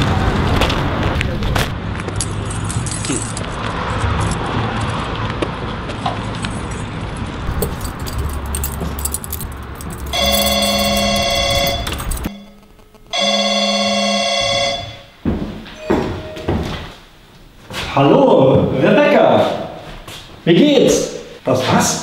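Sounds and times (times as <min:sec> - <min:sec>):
steady background noise: 0:00.0 - 0:22.0
phone ringing: 0:09.9 - 0:15.2, 0:15.8 - 0:17.0.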